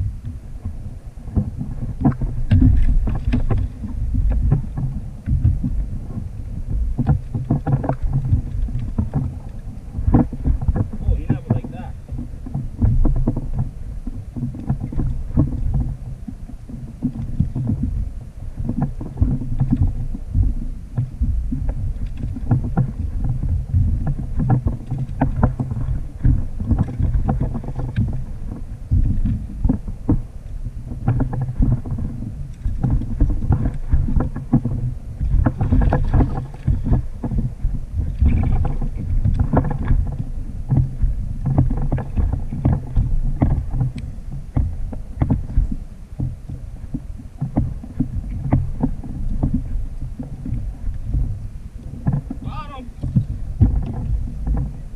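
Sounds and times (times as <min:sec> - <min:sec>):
water lapping at kayak hull: 0:00.0 - 0:54.9
wind buffeting microphone: 0:00.0 - 0:54.9
small irregular knocks: 0:01.3 - 0:05.8, 0:18.6 - 0:30.3, 0:30.9 - 0:54.9.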